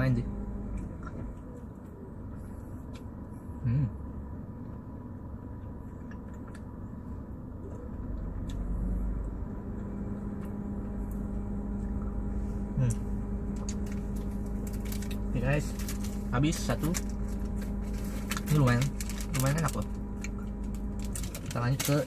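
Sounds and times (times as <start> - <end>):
low background rumble: 0.0 - 22.0
person humming: 3.6 - 4.0.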